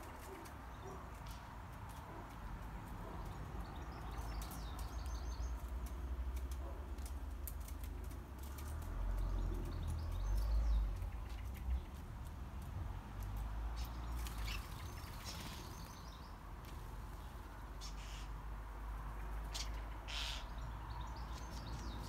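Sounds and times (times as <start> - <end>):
small birds chirping: 0.0 - 22.0
sharp ticks and taps: 0.4 - 14.0.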